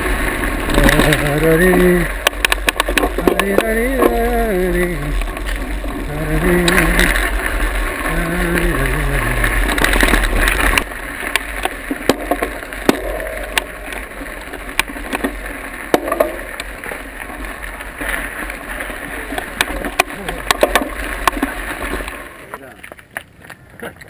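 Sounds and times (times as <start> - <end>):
bike clicks and knocks: 0.0 - 24.0
man singing: 3.2 - 5.2, 6.0 - 7.3, 8.0 - 9.6.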